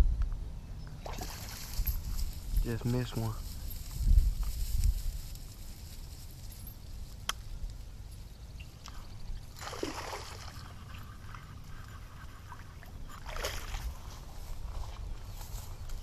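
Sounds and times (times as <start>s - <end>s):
fish splashing in water: 9.6s - 10.7s.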